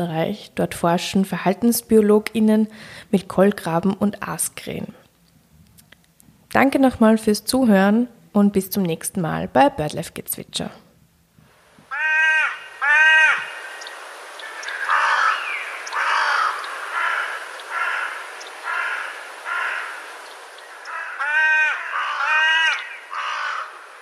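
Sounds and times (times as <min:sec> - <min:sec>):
crow cawing: 0:11.9 - 0:24.0.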